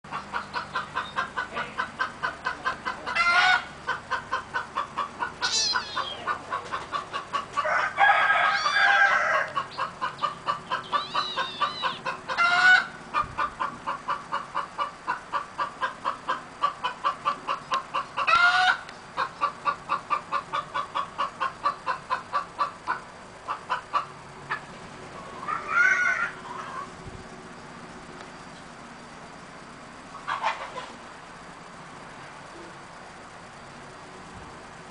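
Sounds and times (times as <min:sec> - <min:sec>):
chickens clucking: 0:00.1 - 0:27.0, 0:30.1 - 0:31.0.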